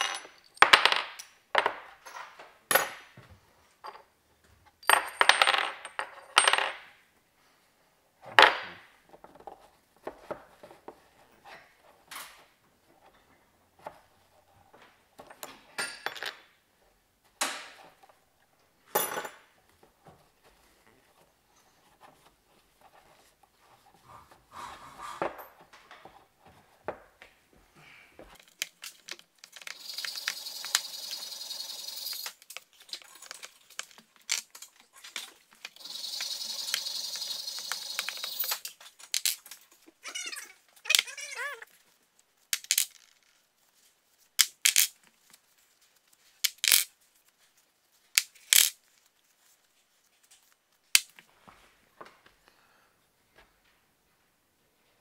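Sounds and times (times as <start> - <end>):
metal parts clinking on workbench: 28.5 - 32.4, 35.8 - 39.4.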